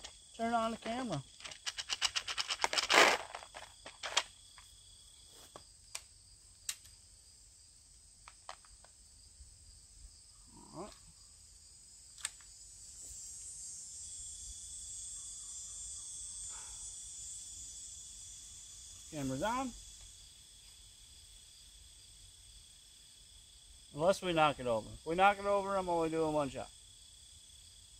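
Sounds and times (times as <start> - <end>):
insects buzzing: 0.0 - 27.9
clicks and taps of rifle handling: 5.9 - 6.9, 8.2 - 9.0.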